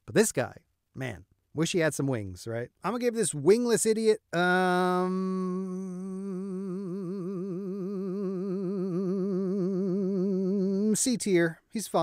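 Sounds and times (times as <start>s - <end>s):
man humming a long note: 4.5s - 11.0s.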